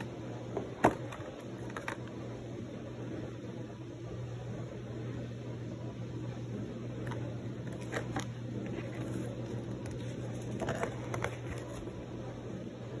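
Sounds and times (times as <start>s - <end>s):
low room hum: 0.0s - 13.0s
paper and cardboard rustling: 7.0s - 12.0s.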